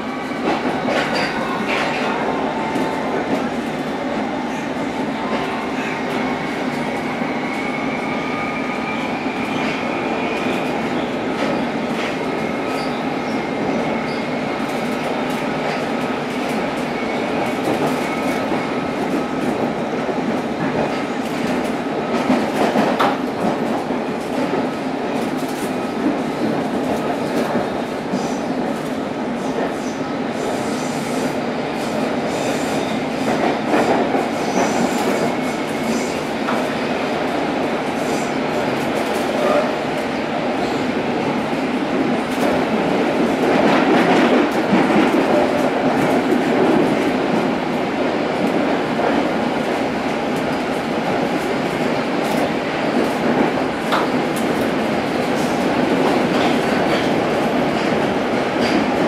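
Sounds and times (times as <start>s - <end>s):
train wheels rumbling on rail: 0.0s - 59.0s
train clattering: 38.5s - 59.0s.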